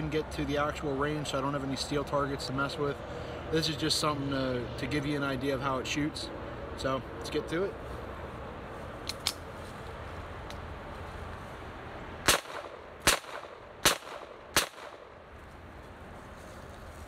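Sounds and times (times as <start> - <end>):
pistol shots: 12.2 - 15.1.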